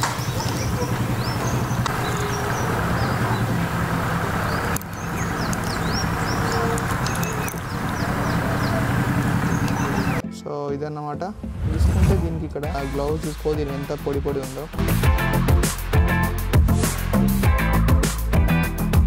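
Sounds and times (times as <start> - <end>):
small birds chirping: 0.0 - 10.2.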